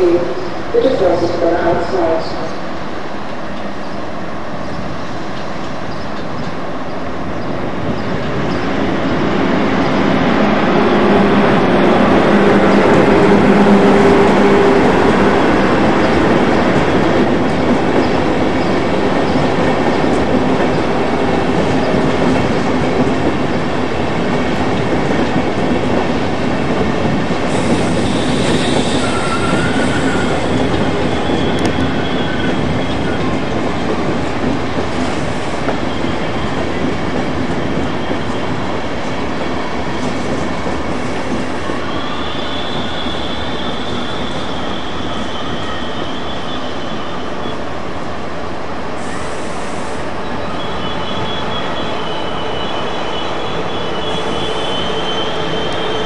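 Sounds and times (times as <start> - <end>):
train wheels rumbling on rails: 0.0 - 56.0
clickety-clack over rail joints: 9.8 - 41.9.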